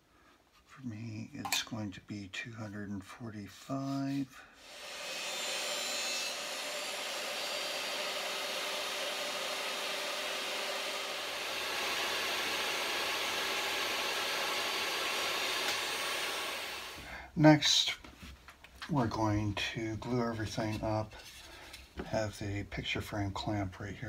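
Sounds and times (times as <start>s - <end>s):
table saw cutting timber: 4.6s - 17.0s.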